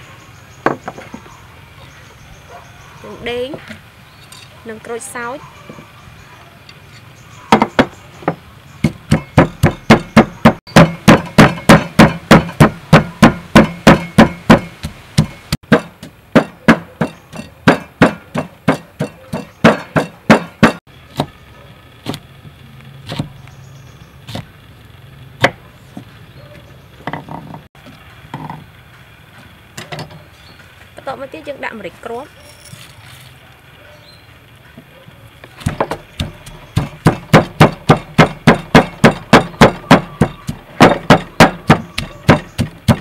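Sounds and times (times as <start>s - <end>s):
wooden pestle pounding in mortar: 7.5s - 21.3s, 35.6s - 43.0s.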